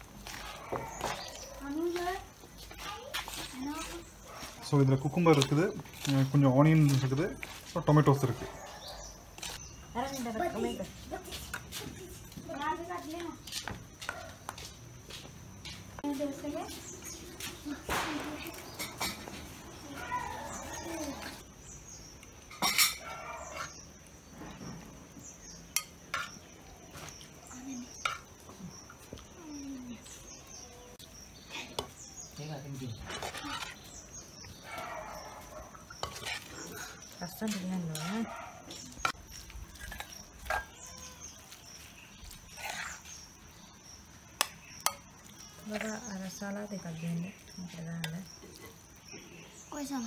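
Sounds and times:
spoon clinking on pots: 0:22.5 - 0:23.0
spoon scraping metal pot: 0:22.5 - 0:23.8, 0:33.0 - 0:34.1, 0:35.8 - 0:38.1, 0:42.5 - 0:43.3
spoon scraping ceramic bowl: 0:35.9 - 0:37.6, 0:42.5 - 0:43.2.

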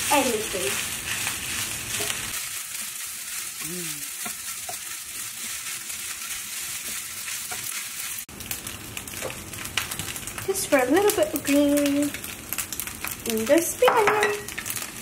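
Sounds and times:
fried rice sizzling in a pan: 0:00.0 - 0:15.0
wooden spatula scraping: 0:00.1 - 0:08.2.

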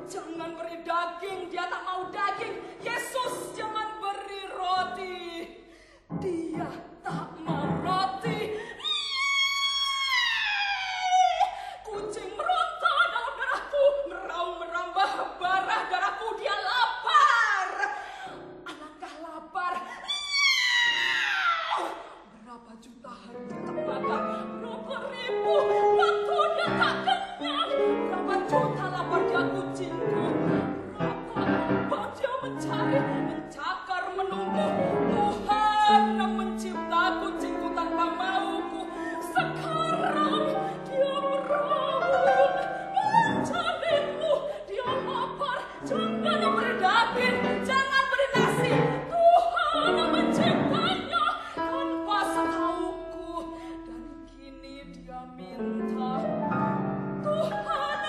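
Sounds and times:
soprano singing operatically: 0:00.0 - 0:58.0
piano accompaniment: 0:06.1 - 0:08.8, 0:23.3 - 0:58.0.

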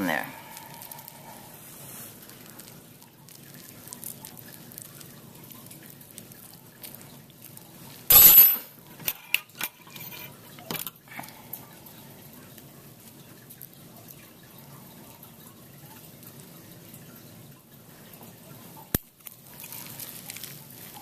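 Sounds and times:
small wet ticks: 0:02.1 - 0:07.9
gloved hands handling wet tissue: 0:19.2 - 0:21.0.

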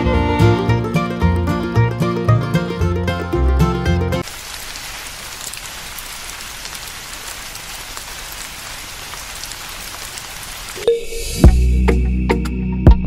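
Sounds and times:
water pattering on sand: 0:04.2 - 0:10.9.

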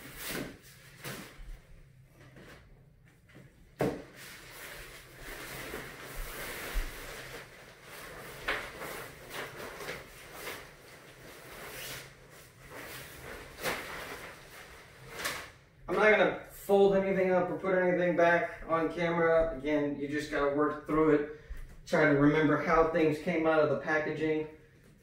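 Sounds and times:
nylon tent cover rustling: 0:04.1 - 0:15.6.

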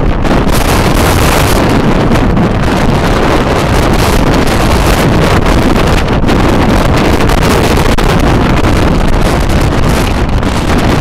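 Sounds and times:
strong wind buffeting microphone: 0:00.0 - 0:11.0.

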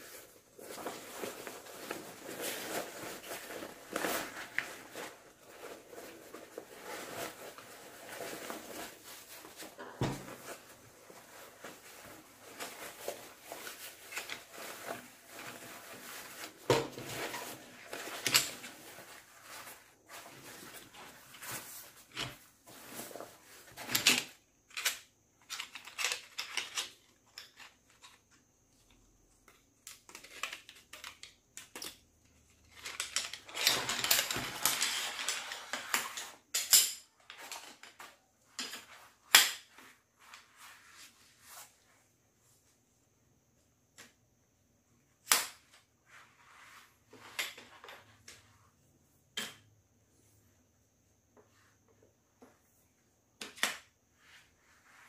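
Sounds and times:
nylon fabric rustling: 0:00.0 - 0:23.7.

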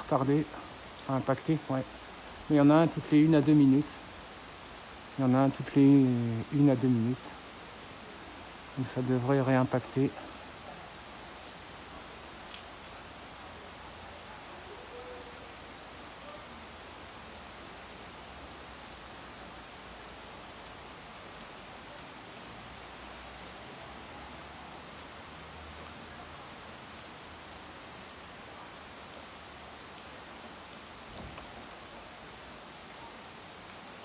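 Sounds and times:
steady rain hiss: 0:00.0 - 0:34.0
faint drip ticks: 0:12.5 - 0:12.7, 0:25.8 - 0:26.2.

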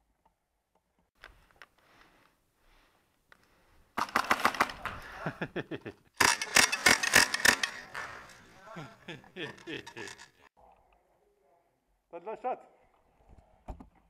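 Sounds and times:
airsoft rifle firing bursts: 0:04.0 - 0:04.9, 0:06.2 - 0:08.1
gear clicking: 0:06.2 - 0:08.4.

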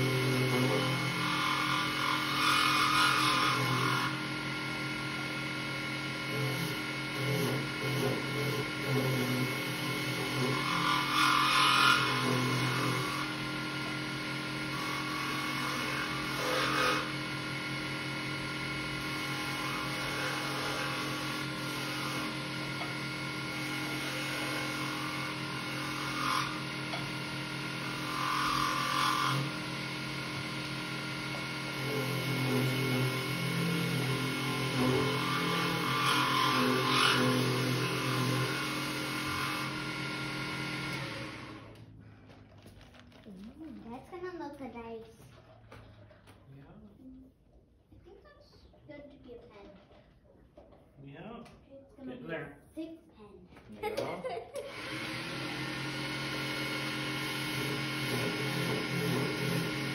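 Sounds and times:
turning tool scraping wood: 0:00.0 - 0:04.6, 0:06.0 - 0:17.8, 0:18.6 - 0:44.4, 0:54.7 - 0:59.9
lathe motor hum: 0:00.0 - 0:42.5, 0:54.0 - 0:59.9.

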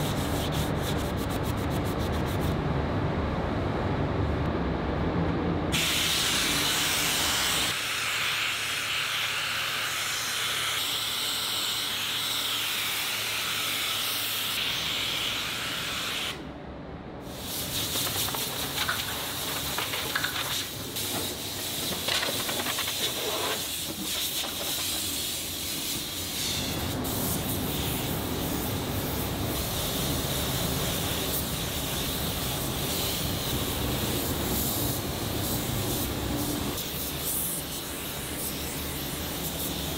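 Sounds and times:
paint spray gun hissing: 0:05.8 - 0:16.4.

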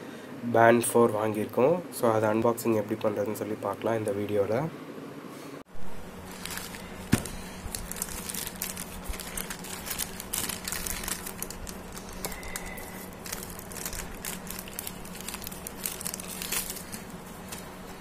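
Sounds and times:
plastic bag tearing: 0:06.2 - 0:17.8
plastic mailer bag crinkling: 0:06.2 - 0:18.0.

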